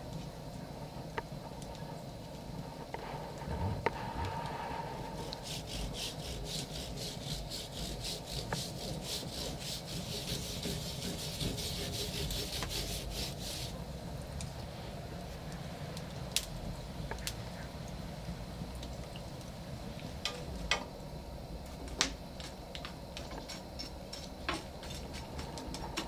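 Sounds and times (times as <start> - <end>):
fire crackles: 0.0 - 26.0
wood fire rumbling: 0.0 - 26.0
rhythmic rasping strokes: 3.8 - 13.8.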